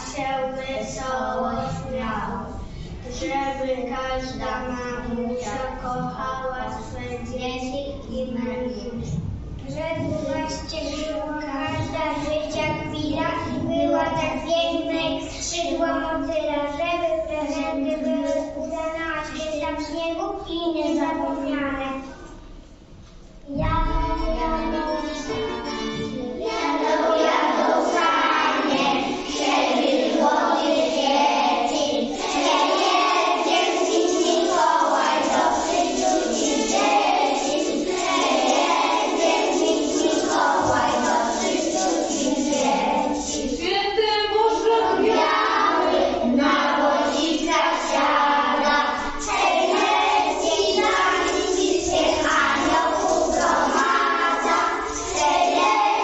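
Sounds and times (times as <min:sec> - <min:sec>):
children singing together: 0:00.0 - 0:00.2, 0:24.6 - 0:43.7, 0:44.4 - 0:56.0.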